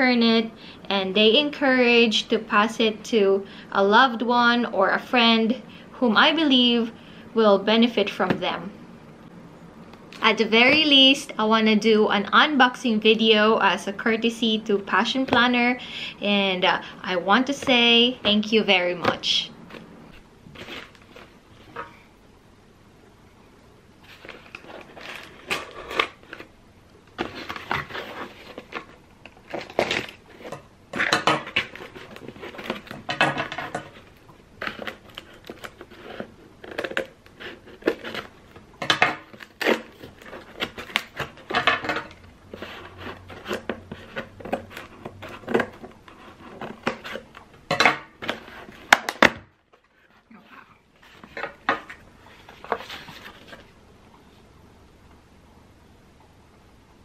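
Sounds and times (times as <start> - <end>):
cardboard scraping: 17.5 - 22.0, 24.0 - 26.6, 27.2 - 38.6, 39.3 - 47.4, 49.8 - 53.8
paper rustling: 19.7 - 21.7, 24.0 - 26.5, 49.7 - 53.8
packing tape crackling: 24.1 - 47.6.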